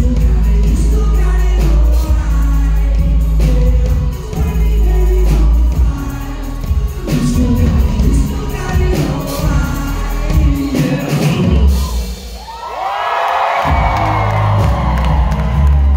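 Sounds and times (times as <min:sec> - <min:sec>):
heavy deep bass: 0:00.0 - 0:12.0
person singing into microphone: 0:00.0 - 0:12.2
live indie pop band: 0:00.0 - 0:15.9.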